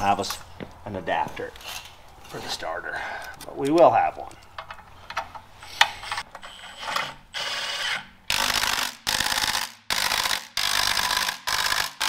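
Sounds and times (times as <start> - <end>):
impact wrench bursts: 7.3 - 12.0.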